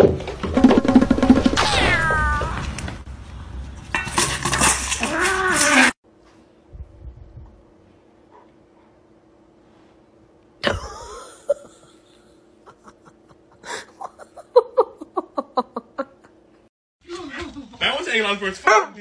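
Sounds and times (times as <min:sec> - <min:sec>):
sharp falling cry: 0:01.5 - 0:02.9
person laughing: 0:10.6 - 0:16.5.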